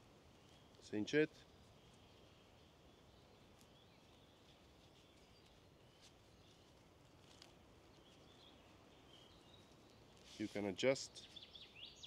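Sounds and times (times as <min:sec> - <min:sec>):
distant bird chirps: 0:07.8 - 0:12.0.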